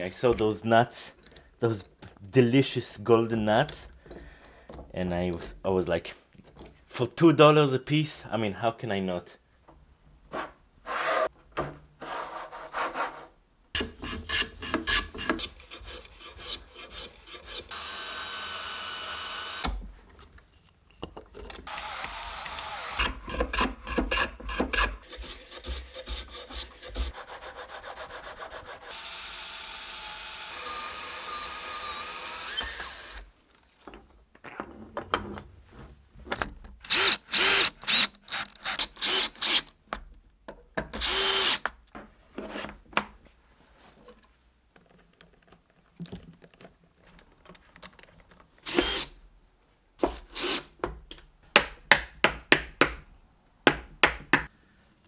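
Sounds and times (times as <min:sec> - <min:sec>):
cordless drill driving screws: 0:17.6 - 0:19.7, 0:21.7 - 0:23.2, 0:28.9 - 0:33.3, 0:36.9 - 0:39.7, 0:41.0 - 0:41.6, 0:48.6 - 0:49.2, 0:50.3 - 0:50.7.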